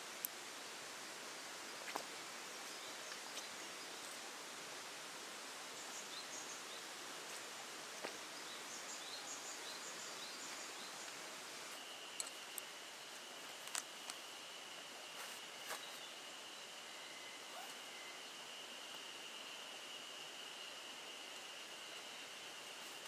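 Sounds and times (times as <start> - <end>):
steady background hiss: 0.0 - 23.0
small birds chirping: 1.5 - 4.8, 5.4 - 23.0
nylon camping gear rustling: 15.0 - 16.1.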